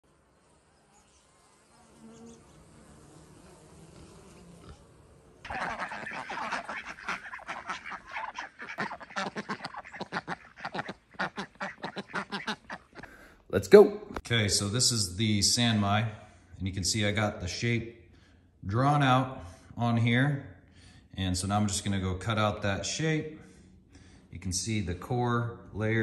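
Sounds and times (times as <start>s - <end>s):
ducks quacking: 5.4s - 13.3s.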